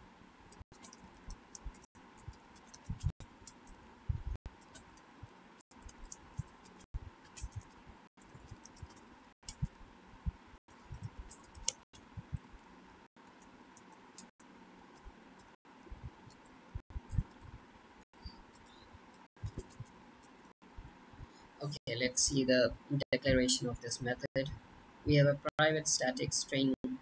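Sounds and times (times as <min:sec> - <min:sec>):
keyboard typing: 0:00.5 - 0:09.8, 0:10.8 - 0:17.5, 0:18.4 - 0:20.4.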